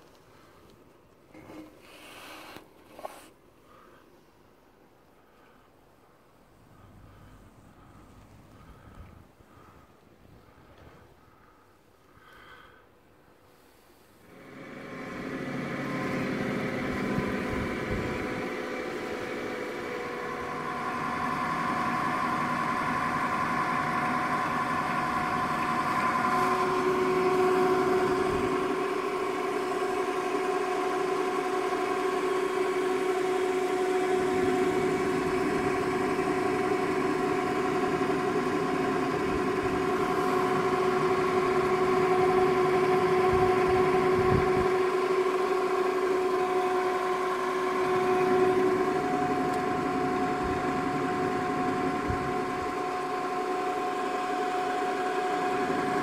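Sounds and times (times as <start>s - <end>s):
mixer motor humming and whining: 14.2s - 56.0s.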